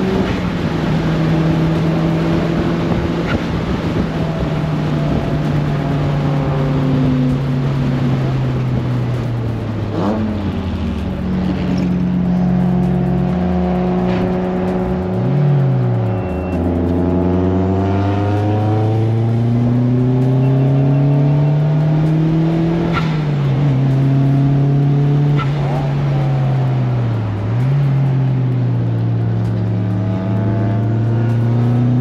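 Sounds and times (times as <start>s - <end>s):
car engine accelerating hard: 0.0s - 32.0s.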